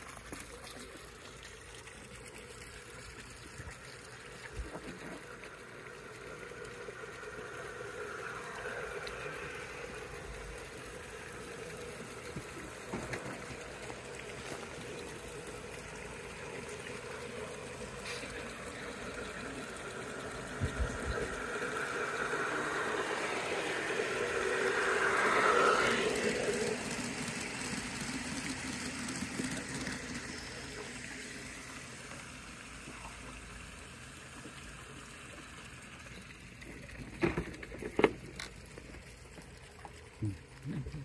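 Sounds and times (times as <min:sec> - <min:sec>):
small waterfall trickling: 0:00.0 - 0:41.0
model locomotive diesel rumble: 0:18.0 - 0:28.1.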